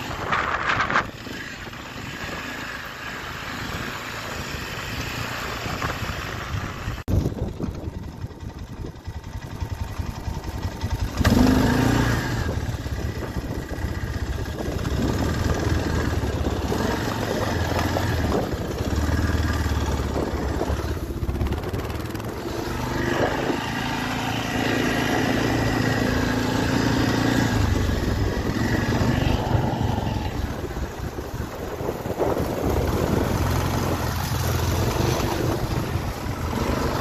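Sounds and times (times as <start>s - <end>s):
atv engine running: 0.0s - 37.0s.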